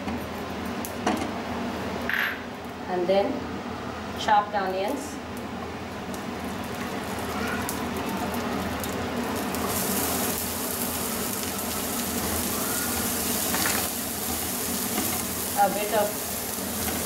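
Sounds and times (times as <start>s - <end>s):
onions sizzling in hot oil: 5.6s - 17.0s.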